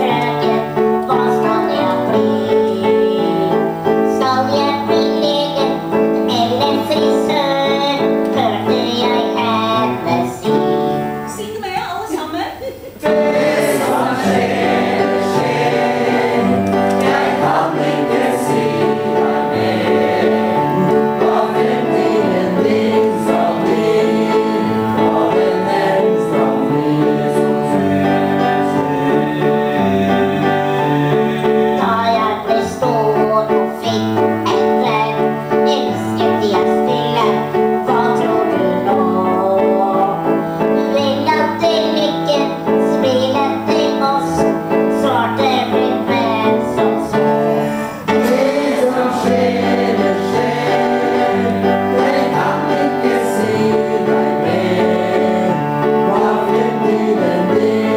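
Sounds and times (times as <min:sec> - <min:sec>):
upright piano accompaniment: 0:00.0 - 0:57.9
women singing: 0:13.0 - 0:30.3, 0:46.2 - 0:57.9.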